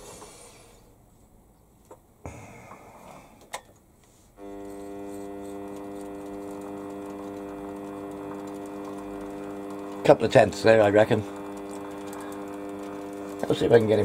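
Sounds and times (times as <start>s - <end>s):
lathe motor whine: 4.4s - 14.0s.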